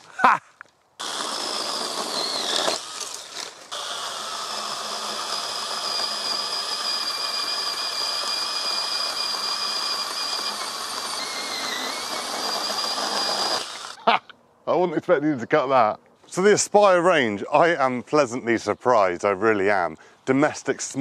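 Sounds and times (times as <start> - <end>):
electric chainsaw sawing branch: 1.0 - 14.0.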